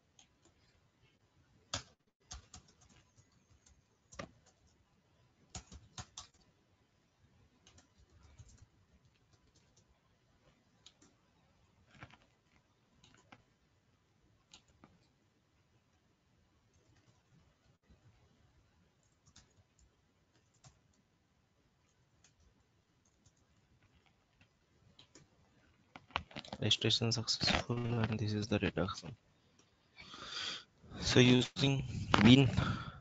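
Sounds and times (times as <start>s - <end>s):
keyboard and mouse clicks: 1.7s - 4.8s, 5.5s - 6.5s, 7.5s - 10.0s, 10.8s - 11.2s, 11.8s - 13.5s, 14.4s - 15.2s, 19.0s - 21.1s, 21.9s - 25.3s, 26.0s - 29.7s.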